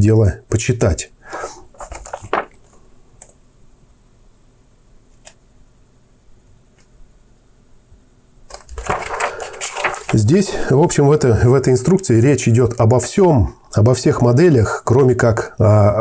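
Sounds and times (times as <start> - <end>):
paper rustling: 1.7 - 2.8, 8.5 - 13.2.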